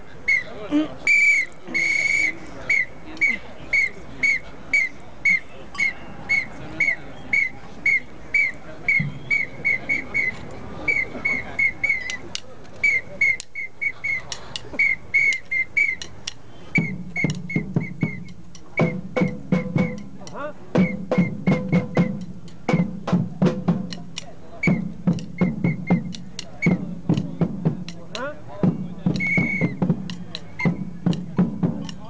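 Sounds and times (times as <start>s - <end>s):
whistle blasts: 0.3s - 12.2s, 12.8s - 20.1s, 20.8s - 23.0s, 24.6s - 26.9s, 29.1s - 31.0s
drumming: 8.9s - 9.8s, 16.0s - 32.0s.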